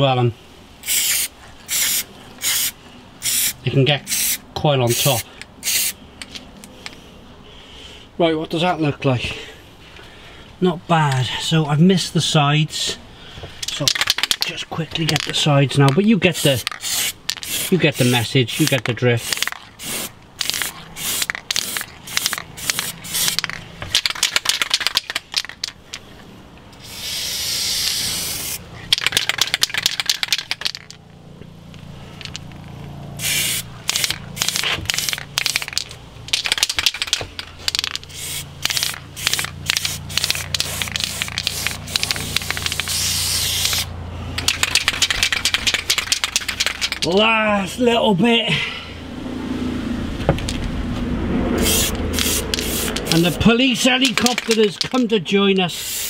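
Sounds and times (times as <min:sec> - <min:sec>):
aerosol paint spraying: 0:00.8 - 0:06.0, 0:16.3 - 0:25.7, 0:26.8 - 0:30.9, 0:33.2 - 0:47.0, 0:51.6 - 0:55.0, 0:55.7 - 0:56.0.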